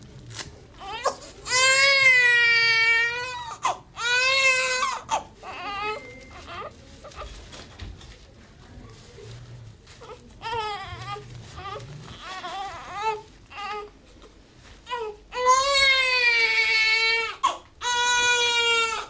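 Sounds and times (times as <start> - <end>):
newborn baby crying: 0.8 - 7.2, 10.0 - 14.0, 14.9 - 19.0.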